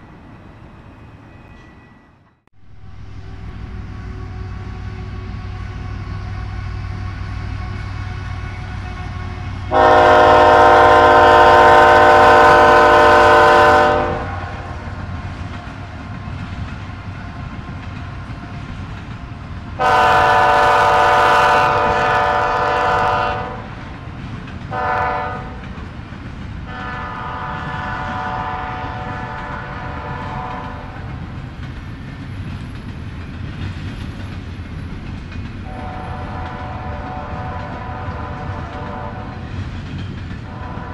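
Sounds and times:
train rumbling on rails: 0.0s - 40.9s
locomotive air horn blasts: 3.2s - 14.9s, 19.8s - 23.7s, 24.7s - 25.6s, 26.7s - 31.0s, 35.6s - 39.4s, 40.5s - 40.9s.

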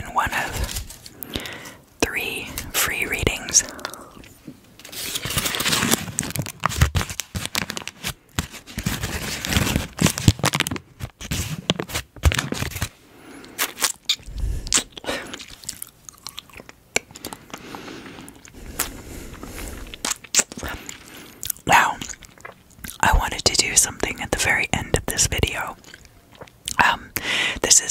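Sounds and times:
lollipop being crunched: 20.0s - 20.8s.

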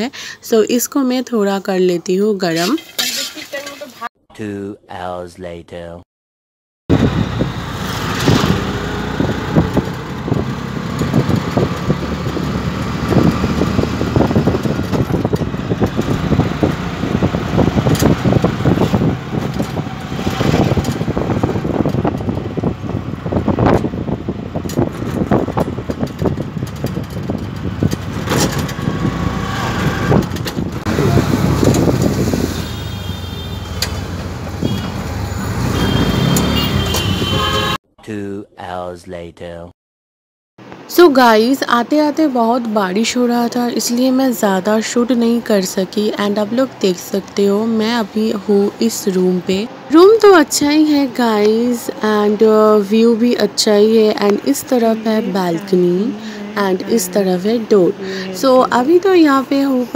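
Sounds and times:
road traffic in rain: 6.9s - 37.8s, 40.6s - 59.9s.

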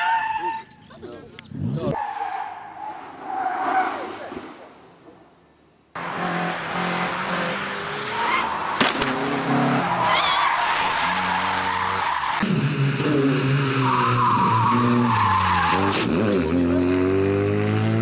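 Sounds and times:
tyres squealing: 6.0s - 12.4s
car engine revving hard: 6.0s - 13.8s
rally car engine passing: 6.0s - 18.0s.

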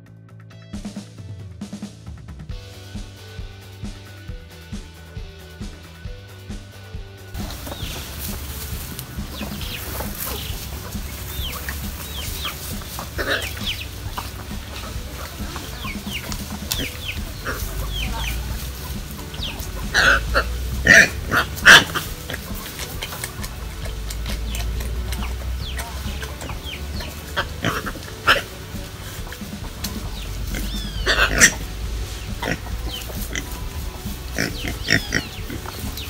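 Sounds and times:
chickens clucking: 7.4s - 36.0s.

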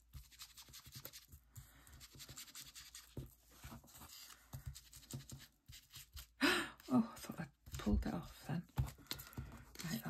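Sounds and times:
pad scratching on paper: 0.0s - 1.3s, 1.9s - 6.2s.

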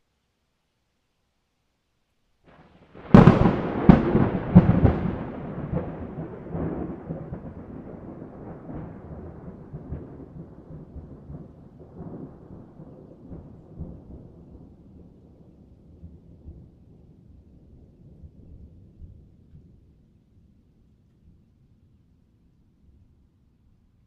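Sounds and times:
thunder cracks and rumble: 2.9s - 19.9s.

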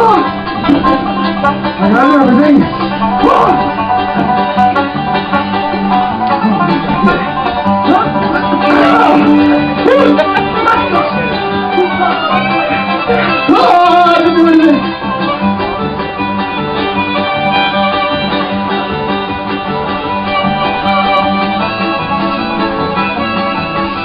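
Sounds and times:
bluegrass banjo: 0.0s - 24.0s
fiddle: 0.0s - 24.0s
guitar: 0.0s - 24.0s.

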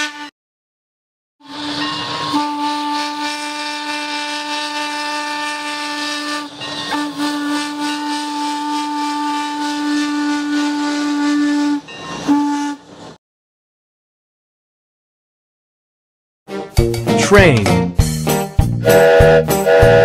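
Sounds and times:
steam locomotive chime whistle: 1.4s - 12.9s, 18.8s - 20.0s.

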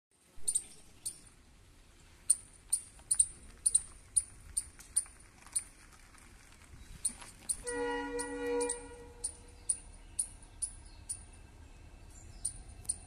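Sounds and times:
high-pitched chirps: 7.0s - 11.4s, 12.4s - 13.0s.

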